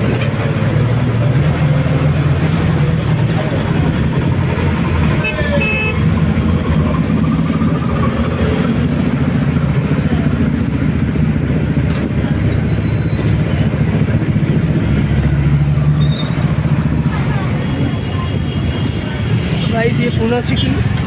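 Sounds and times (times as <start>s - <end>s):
bus engine drone: 0.0s - 21.0s
brief high squeal: 12.5s - 13.4s.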